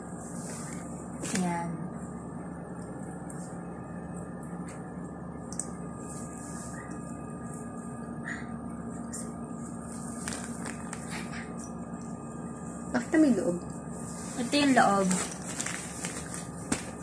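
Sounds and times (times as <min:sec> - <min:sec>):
steady background hum: 0:00.0 - 0:17.0
cloth bag rustling: 0:14.3 - 0:17.0.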